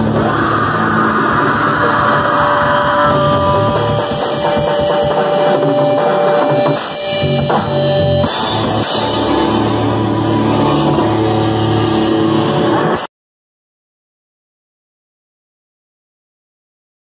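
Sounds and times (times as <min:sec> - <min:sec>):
bass guitar: 0:00.0 - 0:13.1
drum kit with cymbals: 0:00.0 - 0:13.1
electric guitar: 0:00.0 - 0:13.1.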